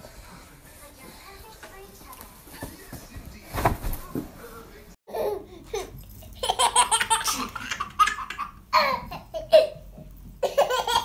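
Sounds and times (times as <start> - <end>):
baby laughing: 5.1 - 9.8, 10.4 - 11.0.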